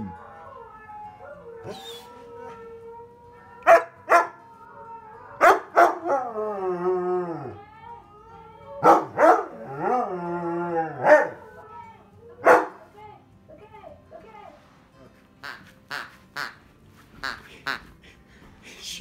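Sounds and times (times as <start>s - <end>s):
dog howling: 0.0s - 11.7s
dog barking: 3.6s - 4.4s, 5.4s - 6.2s, 8.8s - 9.7s, 11.0s - 11.5s, 12.4s - 12.9s.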